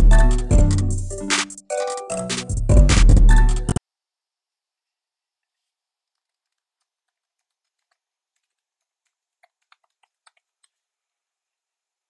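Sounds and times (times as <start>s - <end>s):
keyboard typing: 1.3s - 2.5s, 6.0s - 10.8s.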